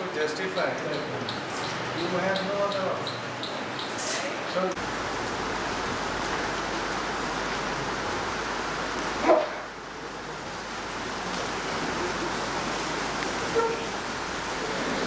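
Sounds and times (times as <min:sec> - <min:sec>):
room hiss: 0:04.7 - 0:15.0.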